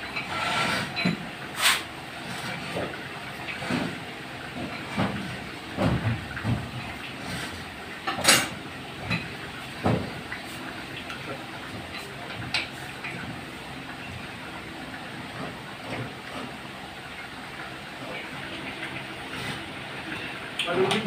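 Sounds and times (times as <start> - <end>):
knocks and scrapes of pump motor: 0.0 - 14.2, 15.3 - 16.6, 19.2 - 20.3.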